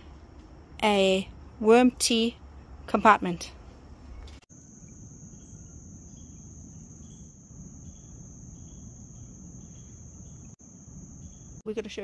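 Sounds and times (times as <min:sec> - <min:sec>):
faint insect chirps: 0:03.9 - 0:12.0
insect high-pitched trill: 0:04.5 - 0:12.0.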